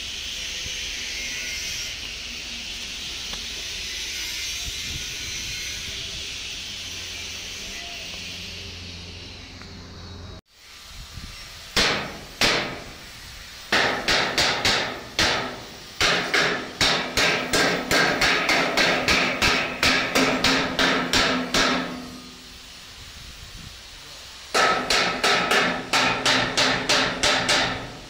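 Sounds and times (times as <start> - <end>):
hammer blows on metal: 13.7 - 22.5, 24.5 - 28.0.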